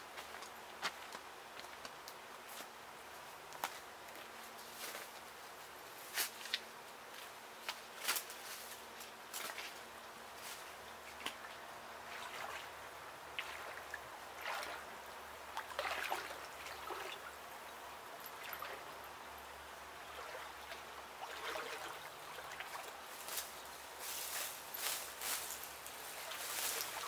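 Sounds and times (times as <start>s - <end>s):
wading splashes in water: 11.1s - 17.4s, 18.2s - 19.0s, 20.0s - 23.6s.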